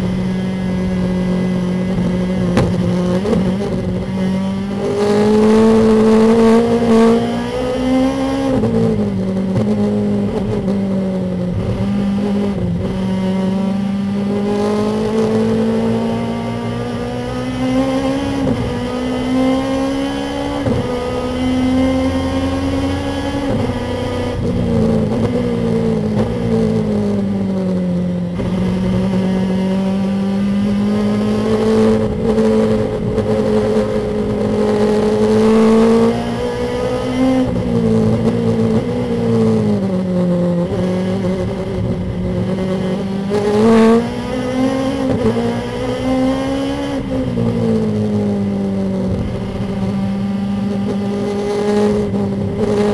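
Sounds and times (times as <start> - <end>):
race car engine at speed: 0.0 - 52.9.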